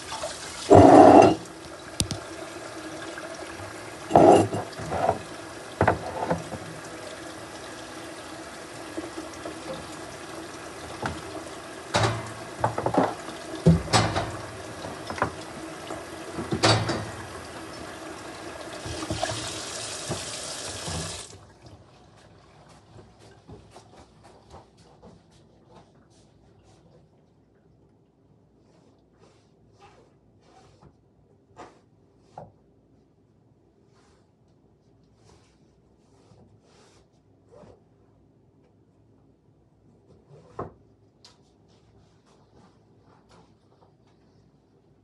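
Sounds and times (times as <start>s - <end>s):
water running from a tap: 0.0s - 22.7s.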